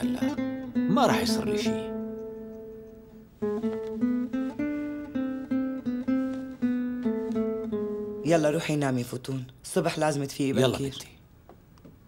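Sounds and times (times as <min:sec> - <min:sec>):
plucked acoustic guitar melody: 0:00.0 - 0:09.2.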